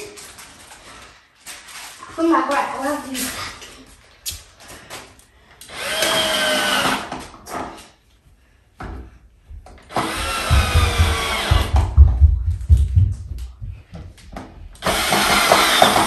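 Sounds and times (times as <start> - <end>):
cordless drill driving screws: 5.6 - 7.7, 9.9 - 11.7, 14.8 - 16.0.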